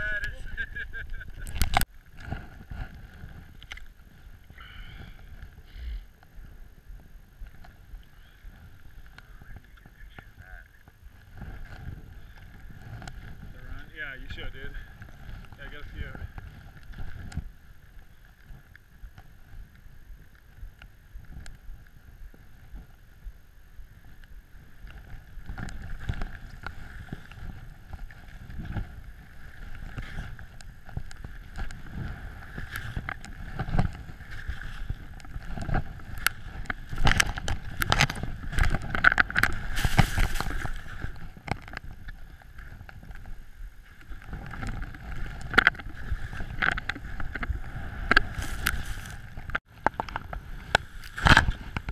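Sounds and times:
wind on microphone: 0.0s - 51.9s
skis swishing through snow: 24.5s - 42.0s, 42.7s - 49.5s.

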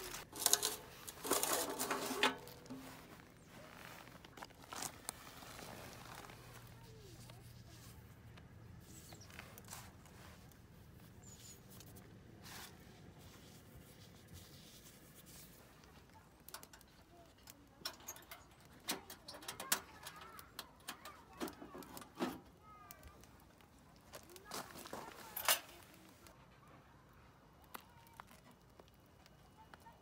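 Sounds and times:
metal plates knocking and scraping: 0.2s - 3.0s, 17.8s - 22.4s.

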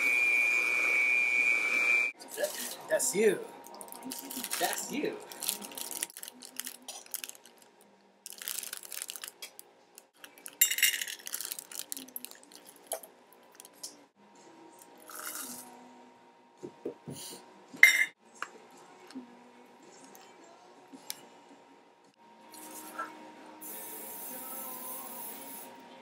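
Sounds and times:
chips pouring into metal cup: 3.7s - 7.6s, 8.3s - 9.5s, 10.2s - 13.0s, 15.1s - 15.6s
plastic bag rustling: 3.7s - 9.6s, 10.2s - 12.9s
utensils clinking against bowl: 10.3s - 11.6s, 17.8s - 18.2s.

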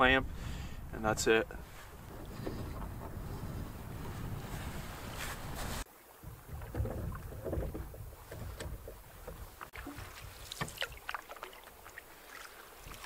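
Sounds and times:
wind rumble on microphone: 0.0s - 10.5s
water splashing and dripping: 6.0s - 13.0s.

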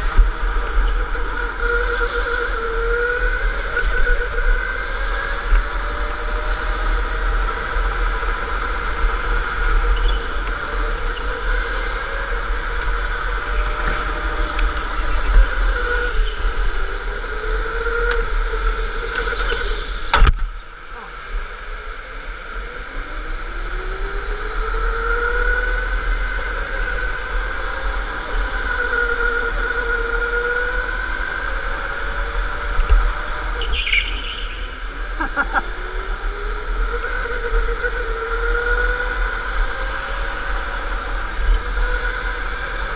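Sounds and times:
electric go-kart motor whine: 0.0s - 42.9s.

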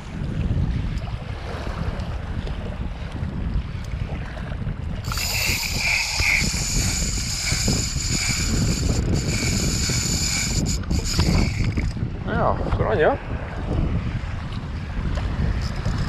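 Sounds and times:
wind buffeting microphone: 0.0s - 16.0s
waves lapping: 1.1s - 12.2s
fishing reel drag screaming: 5.0s - 12.0s.

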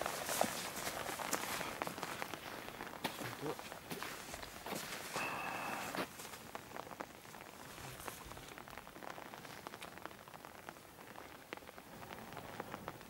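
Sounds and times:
light rain falling: 0.0s - 13.0s.

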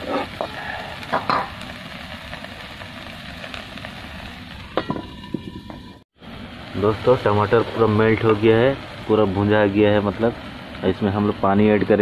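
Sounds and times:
metal spatula scraping pan: 0.0s - 0.5s
sauce sizzling in oil: 0.0s - 12.0s.

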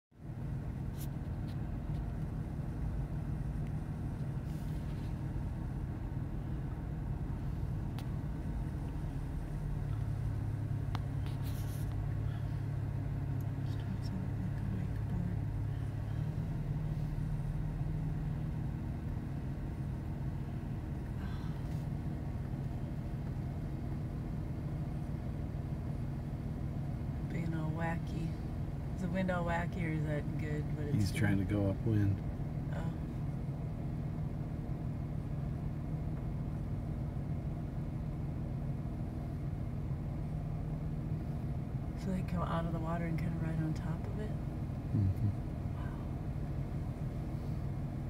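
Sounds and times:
low rumble: 0.2s - 30.9s
droning hum: 0.2s - 48.0s.

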